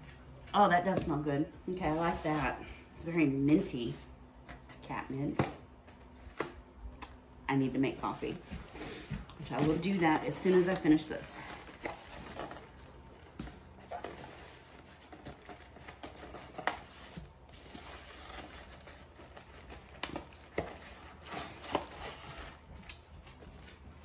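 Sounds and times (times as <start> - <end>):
plastic bag and paper crinkling: 7.9 - 24.0.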